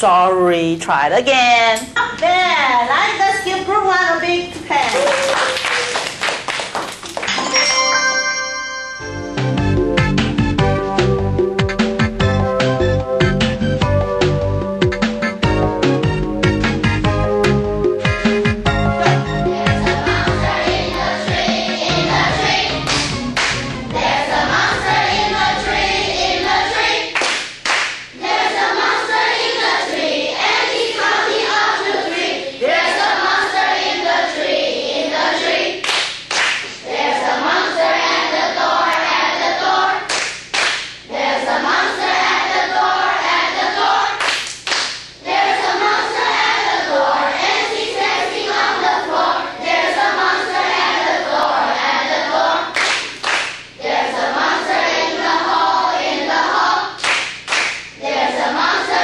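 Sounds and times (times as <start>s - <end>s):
hand clapping to the beat: 4.9s - 7.6s, 22.8s - 23.8s, 27.2s - 28.1s, 35.8s - 36.8s, 40.1s - 41.0s, 44.2s - 45.1s, 52.7s - 53.7s, 57.0s - 58.0s
children singing together: 19.4s - 27.3s, 28.2s - 35.8s, 36.8s - 40.1s, 41.1s - 44.2s, 45.2s - 52.8s, 53.8s - 57.0s, 58.0s - 59.0s.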